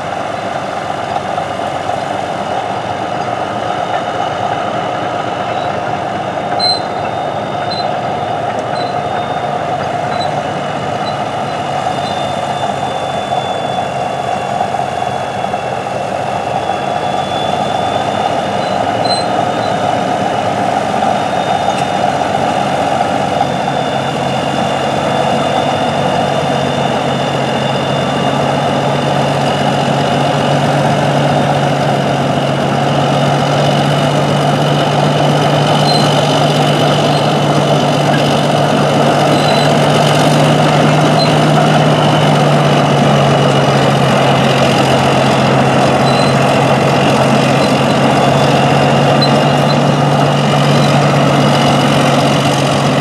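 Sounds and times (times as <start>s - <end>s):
bulldozer diesel engine running: 0.0s - 53.0s.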